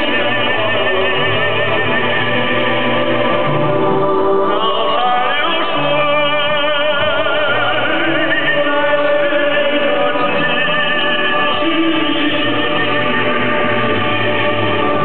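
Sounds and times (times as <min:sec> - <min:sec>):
operatic singing with vibrato: 0:00.0 - 0:15.0
sustained accompaniment: 0:00.0 - 0:15.0.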